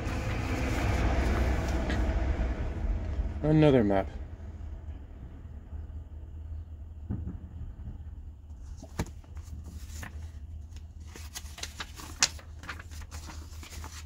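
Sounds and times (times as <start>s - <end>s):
book pages turning: 0.0s - 2.2s, 8.5s - 14.0s
steady low hum: 0.0s - 14.0s.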